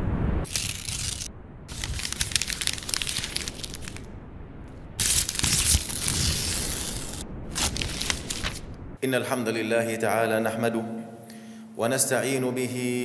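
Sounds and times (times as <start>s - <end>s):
paper crumpling and tearing: 0.5s - 4.1s, 5.0s - 8.7s.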